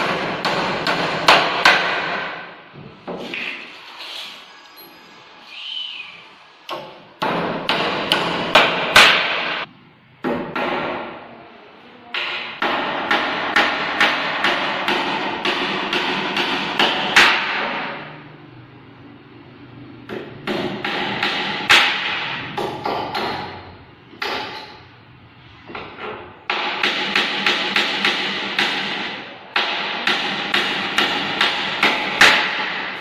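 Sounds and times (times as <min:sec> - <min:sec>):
hammer striking wood: 0:00.0 - 0:02.5, 0:06.7 - 0:11.2, 0:12.2 - 0:18.0, 0:20.0 - 0:24.8, 0:25.7 - 0:33.0.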